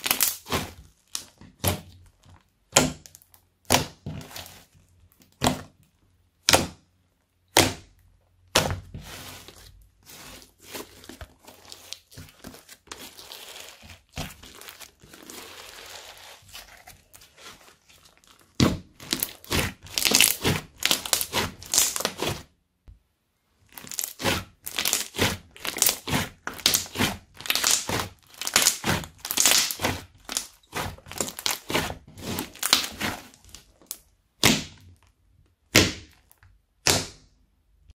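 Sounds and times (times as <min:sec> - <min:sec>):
slime popping and crackling: 0:00.0 - 0:05.7, 0:10.2 - 0:22.4, 0:23.7 - 0:35.1.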